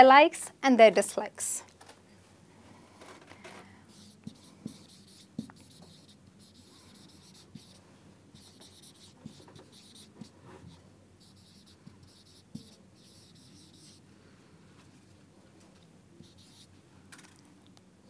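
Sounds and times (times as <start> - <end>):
marker scratching on whiteboard: 3.9 - 14.0, 16.2 - 16.7.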